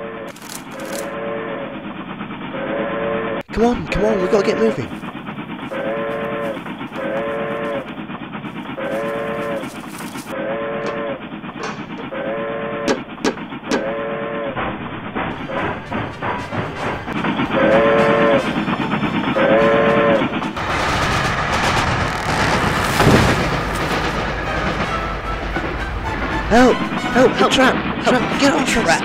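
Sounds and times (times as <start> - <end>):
steam locomotive whistle toots: 0.0 - 1.8, 5.6 - 8.0, 8.6 - 20.6, 23.0 - 28.7
sharp metal clanks: 10.9 - 12.2.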